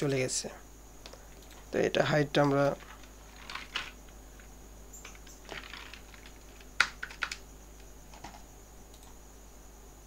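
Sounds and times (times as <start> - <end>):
keyboard keystrokes: 5.0 - 7.4.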